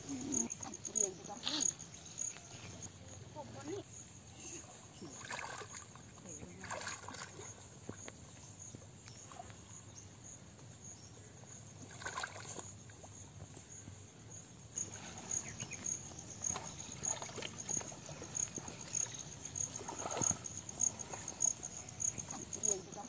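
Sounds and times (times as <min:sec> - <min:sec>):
insects chirping: 0:00.0 - 0:23.0
muddy water sloshing: 0:04.6 - 0:08.4, 0:11.8 - 0:13.2, 0:14.8 - 0:23.0.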